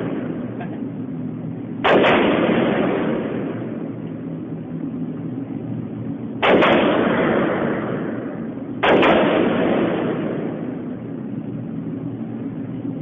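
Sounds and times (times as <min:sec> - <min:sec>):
rifle shots with echo: 0:00.0 - 0:01.0, 0:01.8 - 0:04.4, 0:06.4 - 0:11.3
steady low hum: 0:00.0 - 0:13.0.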